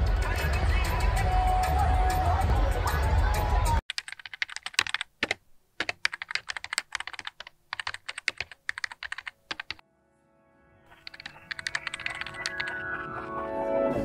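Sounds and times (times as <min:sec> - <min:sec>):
keyboard typing: 0:03.9 - 0:09.8, 0:10.9 - 0:13.4
soft music: 0:09.8 - 0:14.0.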